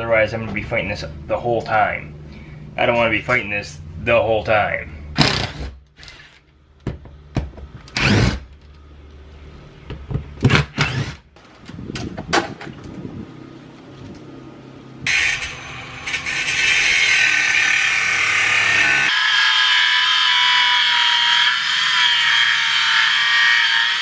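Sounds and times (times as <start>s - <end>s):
drill-driver bursts and knocks: 10.4s - 11.2s
power tool running steadily: 15.1s - 24.0s.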